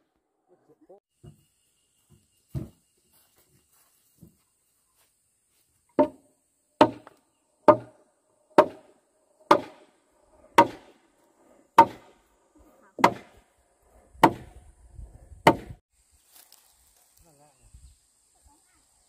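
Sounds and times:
blade chopping wood: 6.8 - 8.0, 8.6 - 8.9, 9.5 - 9.9, 10.6 - 11.0, 11.8 - 12.2, 13.0 - 13.4, 14.2 - 14.5, 15.5 - 15.8.

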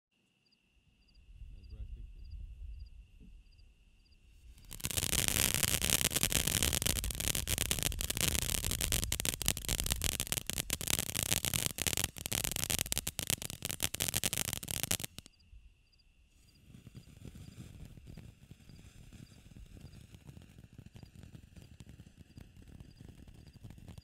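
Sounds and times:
firework fountain hissing and crackling: 4.4 - 15.3, 16.4 - 24.0.

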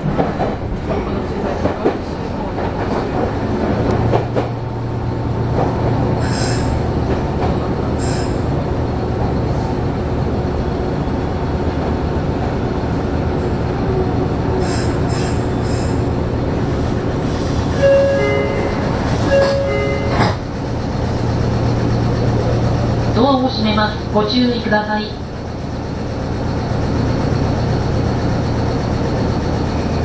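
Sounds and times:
electric train rumble and hum: 0.0 - 30.0.

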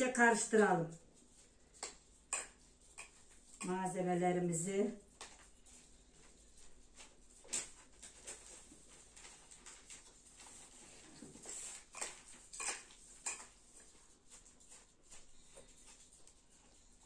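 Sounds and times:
spoon scraping a bowl: 11.6 - 13.6.

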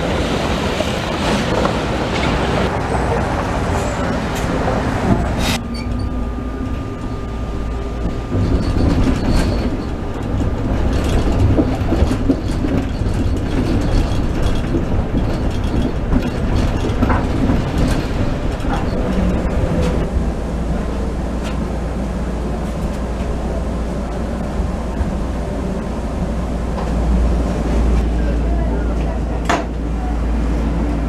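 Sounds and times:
streetcar rumbling on rails: 0.0 - 31.0
knocks and clanks: 8.2 - 20.1.

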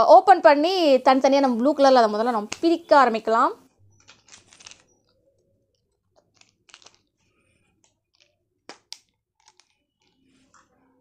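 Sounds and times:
packaging crinkling: 3.9 - 5.1, 5.8 - 10.3
plastic cap snapping open: 8.7 - 9.7.

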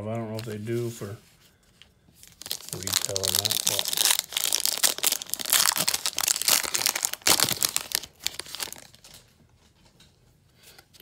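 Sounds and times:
foil wrapper tearing and crinkling: 2.2 - 9.1.

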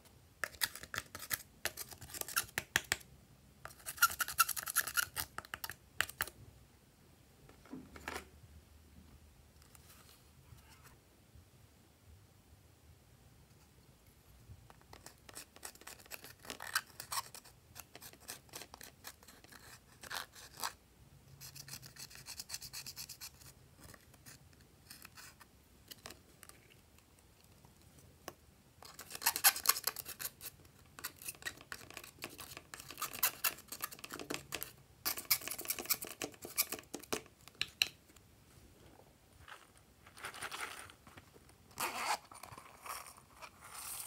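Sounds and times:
brush scraping eyeshadow: 21.4 - 25.4, 28.8 - 37.1, 41.9 - 44.0.

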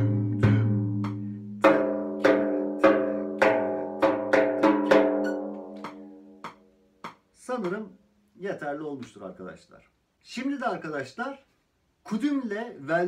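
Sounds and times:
frame drum strokes ringing: 0.0 - 6.5.

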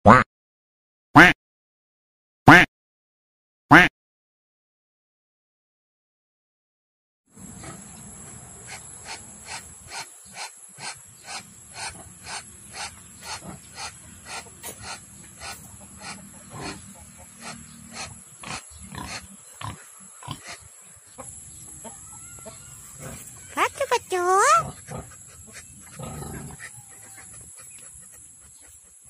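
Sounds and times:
duck calling hoarsely: 2.5 - 2.7, 23.5 - 24.7.

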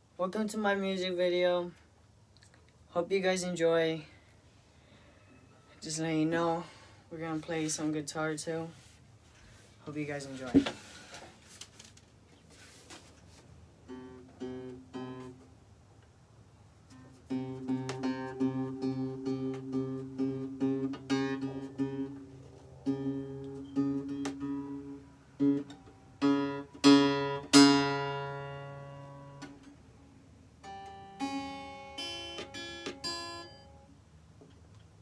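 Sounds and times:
acoustic guitar: 13.8 - 15.6, 16.8 - 29.8, 30.5 - 33.9.

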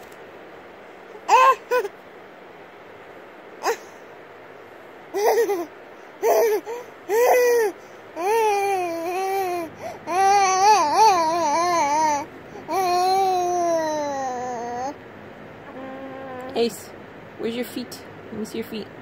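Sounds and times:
baby babbling: 1.2 - 1.9, 3.6 - 4.0, 5.2 - 15.0, 15.7 - 16.6.

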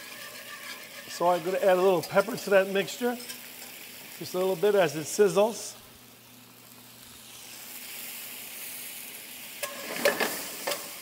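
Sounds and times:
utensil scraping and clinking pan: 0.0 - 2.5
sauce sizzling in a skillet: 0.0 - 11.0.

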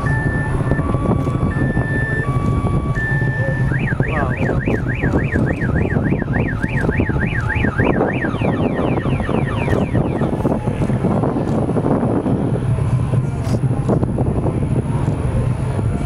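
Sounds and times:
car alarm: 0.0 - 10.4
rocket engines rumbling: 0.0 - 16.0.

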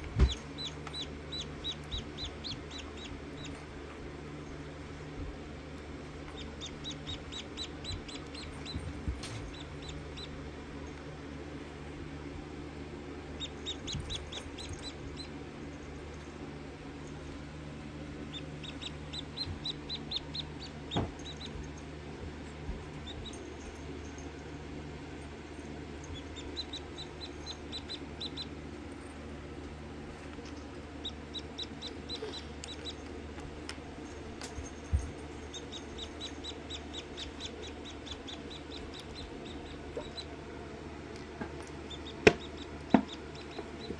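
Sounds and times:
chick peeping: 0.0 - 3.5, 6.4 - 8.8, 13.4 - 15.3, 18.3 - 21.4, 26.2 - 28.5, 31.0 - 33.0, 35.5 - 40.4, 41.9 - 43.9
low steady hum: 0.0 - 43.9.

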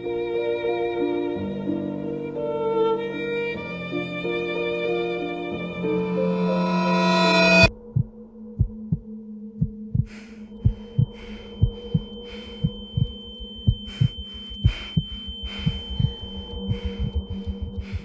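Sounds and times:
high steady ringing tone: 5.8 - 7.7, 10.4 - 18.0
low steady hum: 5.8 - 9.0, 9.6 - 18.0
heartbeat thumps: 7.6 - 18.0.

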